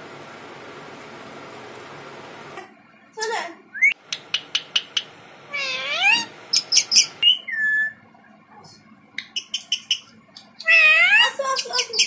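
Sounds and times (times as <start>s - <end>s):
parakeet clicks and chirps: 4.0s - 5.1s, 9.2s - 12.0s
parakeet calling: 4.2s - 8.0s, 9.2s - 12.0s
parakeet whistle: 4.6s - 8.0s, 9.2s - 12.0s.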